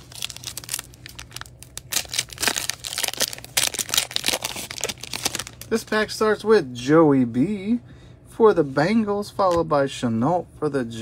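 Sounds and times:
foil wrapper crinkling: 0.0s - 5.8s.

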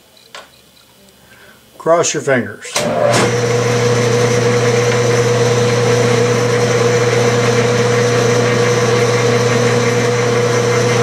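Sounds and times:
metal lathe running: 2.8s - 11.0s.

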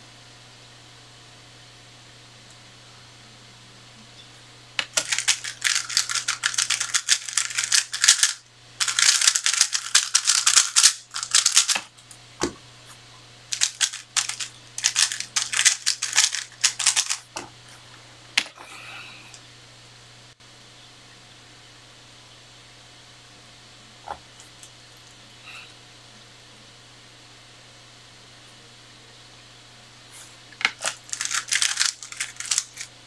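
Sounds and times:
puzzle cube turning clicks: 4.8s - 11.8s, 13.6s - 17.2s, 30.6s - 32.9s.

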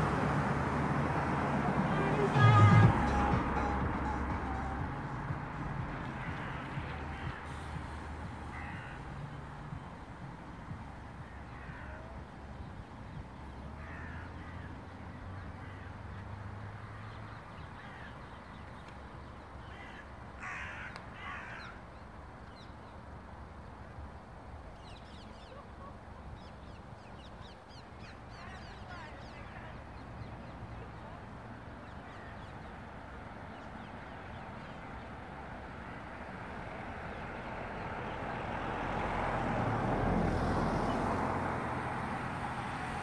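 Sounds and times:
small birds chirping: 1.9s - 35.6s
crows cawing: 5.5s - 9.5s, 11.2s - 12.2s, 13.8s - 16.1s, 19.6s - 22.0s.

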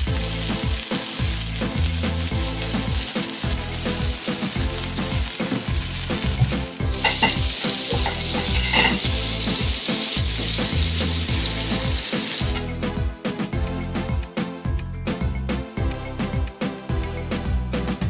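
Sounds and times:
patties sizzling on a griddle: 0.0s - 12.7s
background music beat: 0.0s - 18.0s.

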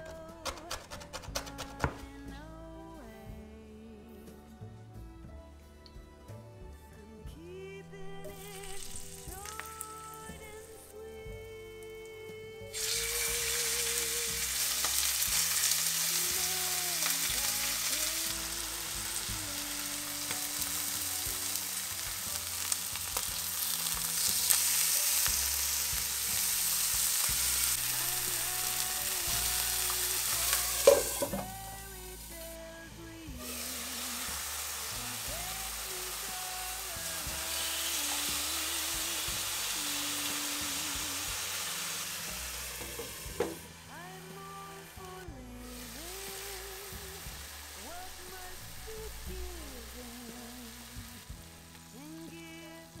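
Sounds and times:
chicken sizzling in hot oil: 8.2s - 10.9s, 12.6s - 53.0s.

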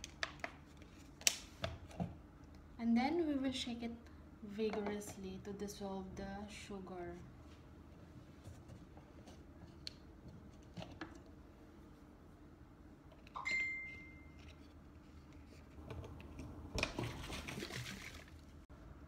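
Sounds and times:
liquid sloshing in shaken bottle: 16.8s - 18.6s.

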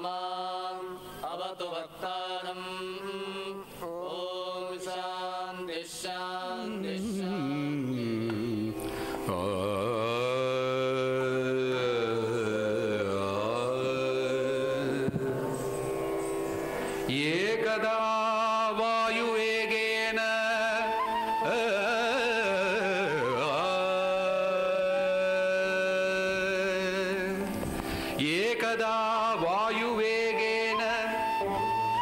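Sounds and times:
steady drone: 6.6s - 18.9s.

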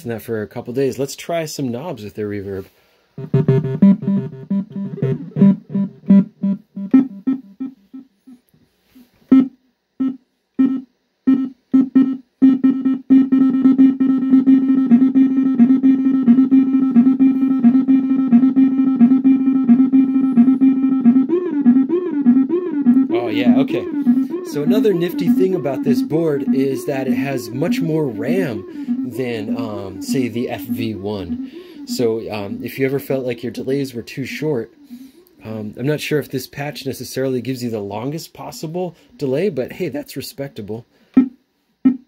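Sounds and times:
synthesizer drone with pulsing repeats: 10.0s - 35.5s
synthesizer notes with echoes: 11.8s - 35.6s.

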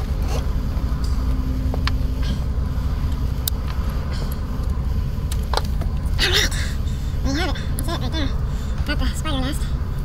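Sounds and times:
steady low rumble: 0.0s - 10.0s
engine parts clicking: 3.0s - 6.2s.

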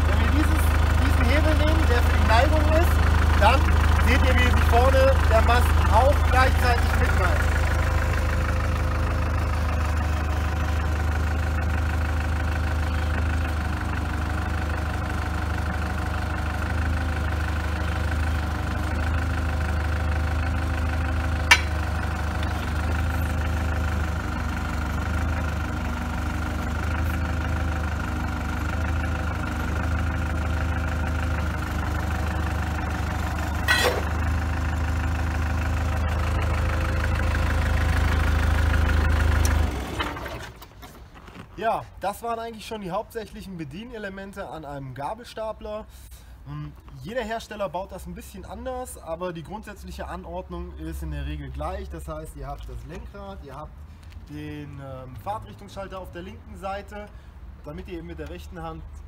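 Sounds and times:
forklift engine idling: 0.0s - 44.0s.

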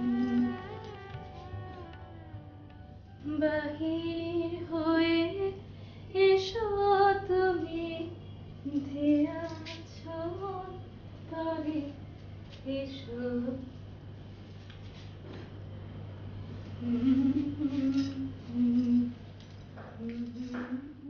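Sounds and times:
woman singing: 0.0s - 2.6s, 3.2s - 12.0s, 12.6s - 13.7s, 16.8s - 19.2s, 19.9s - 21.0s
soft instrumental backing: 0.0s - 5.4s.

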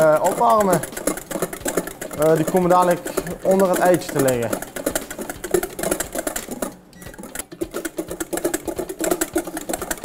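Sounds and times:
whisk beating in metal bowl: 0.0s - 10.0s.

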